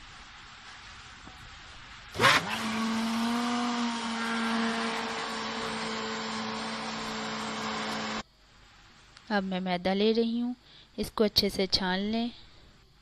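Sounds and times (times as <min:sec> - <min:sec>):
electric blender motor running: 0:02.1 - 0:08.2.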